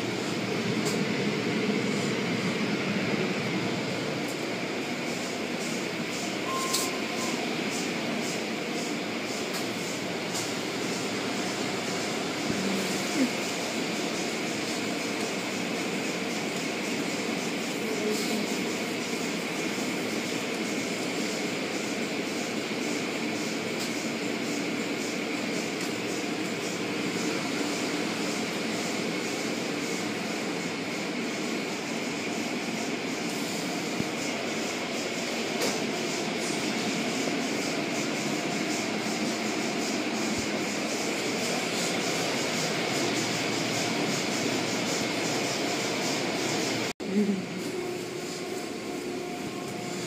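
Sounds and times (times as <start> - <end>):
car wash brushes and machinery: 0.0 - 50.0
short beep: 6.4 - 7.4.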